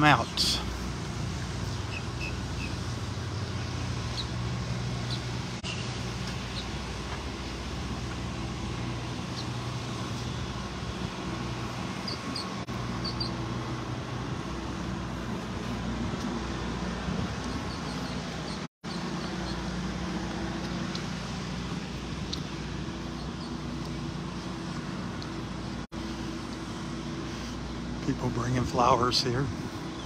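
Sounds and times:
engine humming nearby: 0.0s - 30.0s.

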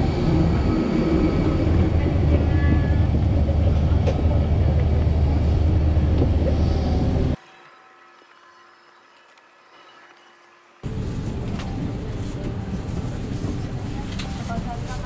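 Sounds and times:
airliner machinery rumble: 0.0s - 7.4s.

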